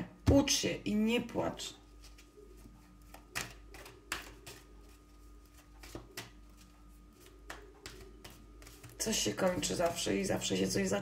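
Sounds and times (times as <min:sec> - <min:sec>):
faint steady hum: 0:00.0 - 0:11.0
cards clicking and tapping: 0:03.0 - 0:09.7.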